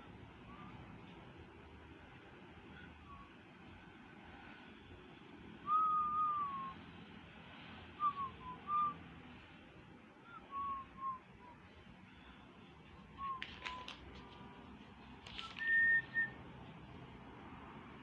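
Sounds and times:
person whistling a tune: 5.6 - 6.8, 8.0 - 9.0, 10.2 - 11.6, 13.2 - 13.8, 15.4 - 16.4.

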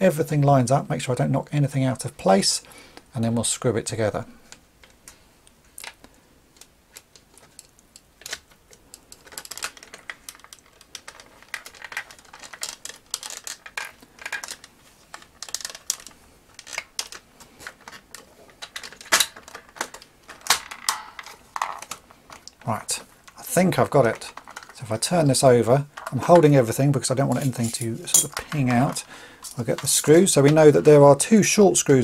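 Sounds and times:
plastic toy parts clicking: 6.6 - 22.7.

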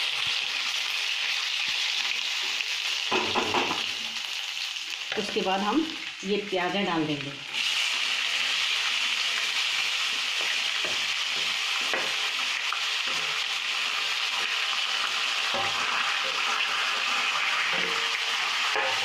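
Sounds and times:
oil sizzling in a pan: 0.0 - 19.0
wooden spatula scraping and tapping: 10.1 - 12.2.

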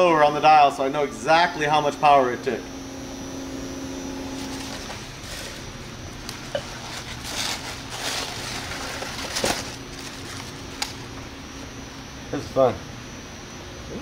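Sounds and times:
faint steady hum: 0.0 - 14.0
paper packing rustling: 4.4 - 11.2.

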